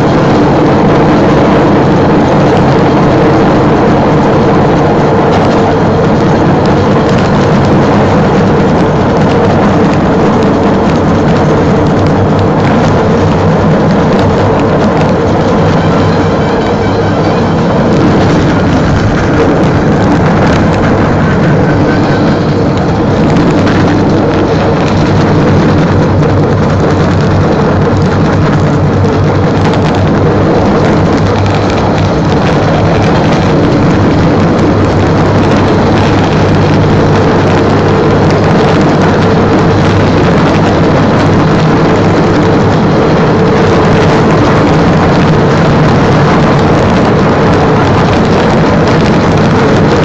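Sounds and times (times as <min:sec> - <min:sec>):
rail vehicle engine droning: 0:00.0 - 0:50.0
wheels rolling on track: 0:00.0 - 0:50.0.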